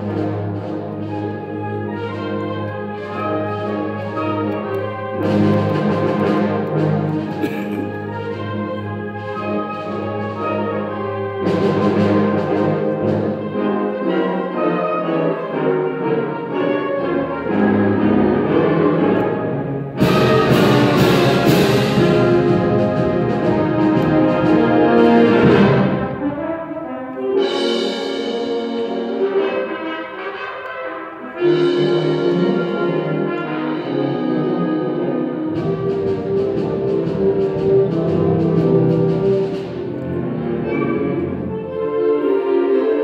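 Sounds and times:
wind band playing chords: 0.0s - 43.0s.

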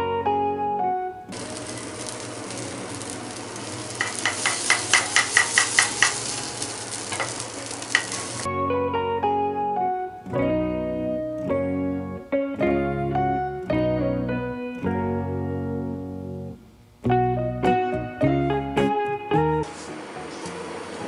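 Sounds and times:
plucked guitar music: 0.0s - 20.9s
batter sizzling in a frying pan: 1.3s - 8.5s
metal spatula tapping and scraping: 4.0s - 6.3s, 7.1s - 8.2s.

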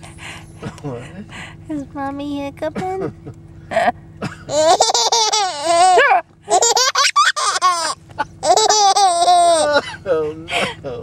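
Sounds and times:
baby laughing: 4.5s - 9.8s.

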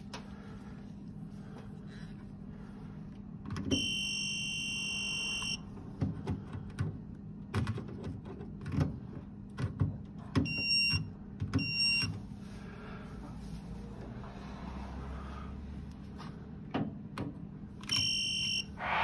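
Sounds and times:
electrical tester beeping: 3.7s - 5.6s, 10.4s - 12.1s, 17.8s - 19.0s.

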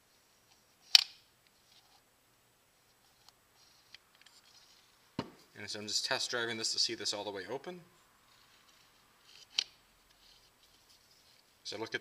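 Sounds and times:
faint small clicks and rustles: 2.8s - 5.1s, 8.2s - 11.7s.

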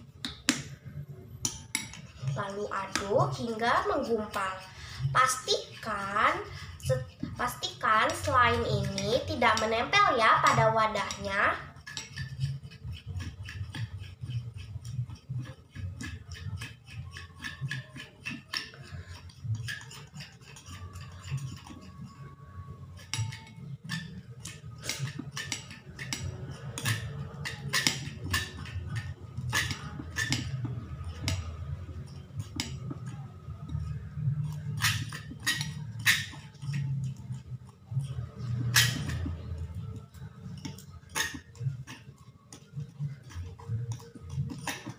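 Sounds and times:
spoon stirring sticky slime: 0.0s - 44.9s
spoon clicking against bowl: 10.4s - 15.1s, 15.7s - 22.3s, 23.0s - 33.1s, 33.7s - 37.4s, 38.0s - 44.9s.

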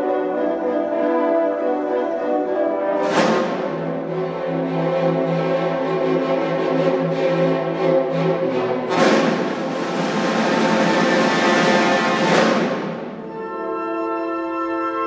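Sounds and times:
symphony orchestra playing: 0.0s - 15.0s
loud percussion crash: 8.9s - 13.4s.

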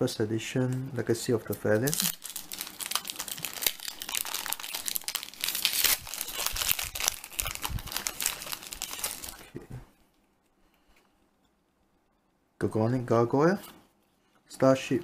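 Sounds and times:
foil wrapper crinkling and tearing: 1.7s - 9.5s.

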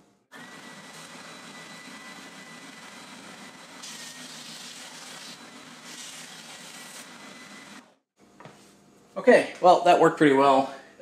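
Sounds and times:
sander motor whine: 0.3s - 7.9s
wood sanding on belt: 2.6s - 7.8s.

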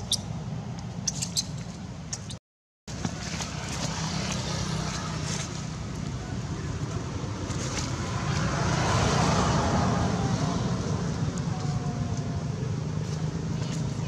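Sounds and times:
traffic rumble: 0.0s - 14.0s
vehicle passing: 2.9s - 14.0s.

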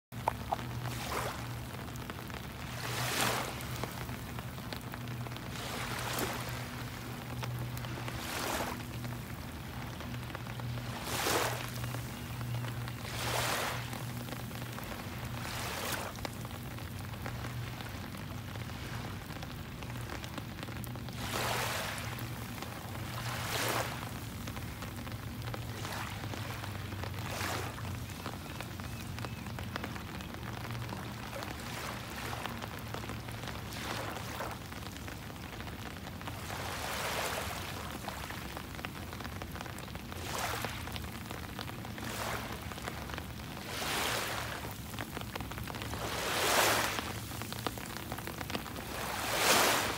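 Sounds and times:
rain falling on the sea: 0.0s - 49.9s
low steady hum: 0.1s - 49.9s.

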